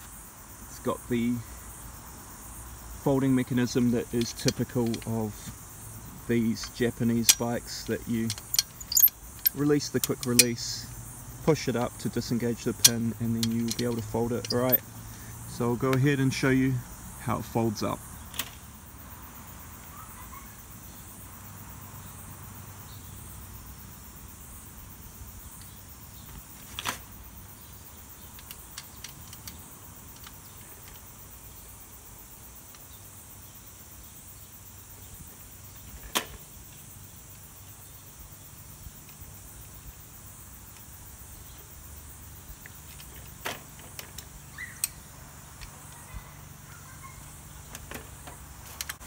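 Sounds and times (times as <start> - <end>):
folding bike clicks and knocks: 3.4 - 5.6, 6.3 - 10.9, 11.5 - 14.9, 18.3 - 18.6, 25.6 - 27.2, 28.2 - 31.1, 35.8 - 36.6, 42.6 - 46.1, 47.6 - 49.0.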